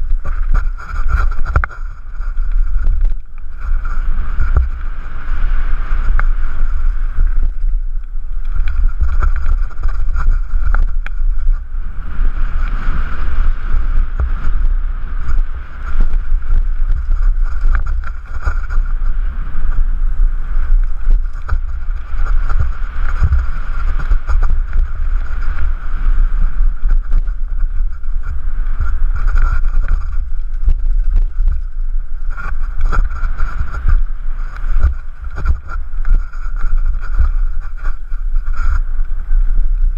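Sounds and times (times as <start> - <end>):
wind buffeting microphone: 0.0 - 39.9
bike rattling and knocking: 8.5 - 11.7, 15.2 - 19.8, 20.6 - 38.8.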